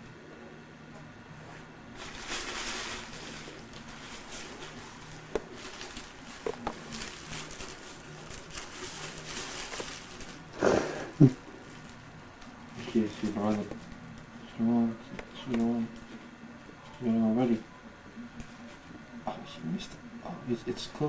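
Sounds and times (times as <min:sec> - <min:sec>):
plastic bag rustling: 0:01.4 - 0:16.3.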